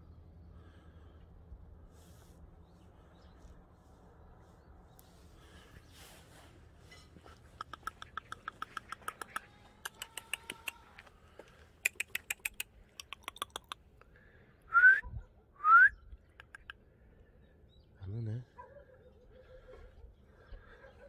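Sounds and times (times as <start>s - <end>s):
person making mouth clicks: 7.4s - 11.0s, 11.8s - 14.1s, 16.2s - 16.8s
short rising whistles: 14.7s - 16.0s.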